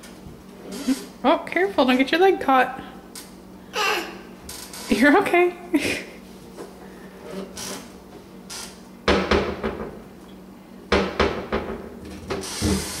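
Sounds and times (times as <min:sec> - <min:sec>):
cabinet door banging shut: 0:09.1 - 0:09.9, 0:10.9 - 0:11.9.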